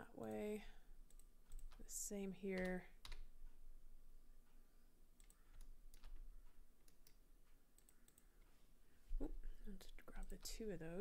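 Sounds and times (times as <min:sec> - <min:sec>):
keyboard and mouse clicks: 0:01.1 - 0:03.3, 0:05.2 - 0:08.3.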